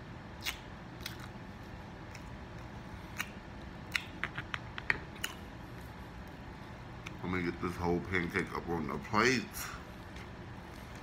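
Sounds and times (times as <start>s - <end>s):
short wet mouth clicks: 0.4s - 1.4s
chewing food: 0.4s - 7.2s.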